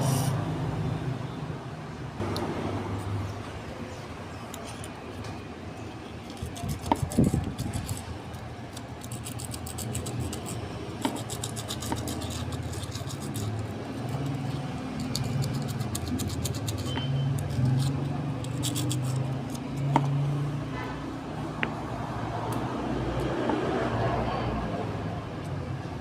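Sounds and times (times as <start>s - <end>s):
sanding block scraping plastic: 6.2s - 19.9s.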